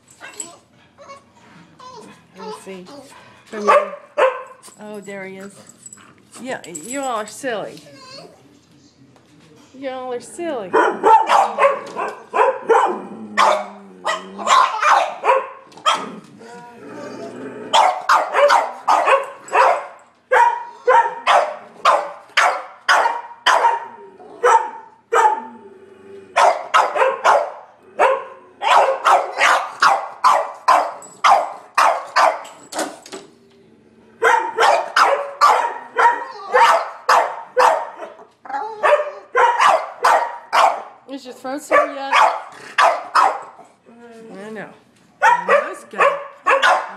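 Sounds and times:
dogs barking: 3.6 - 4.6, 10.7 - 16.2, 17.7 - 25.5, 26.4 - 32.6, 34.2 - 41.0, 41.6 - 43.8, 45.2 - 46.9.

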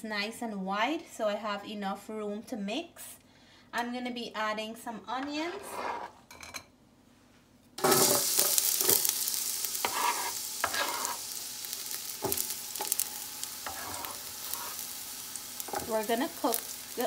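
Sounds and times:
onions sizzling in hot oil: 7.8 - 17.0
utensil knocking and scraping pot: 9.8 - 11.2, 13.6 - 14.8, 15.7 - 16.1.

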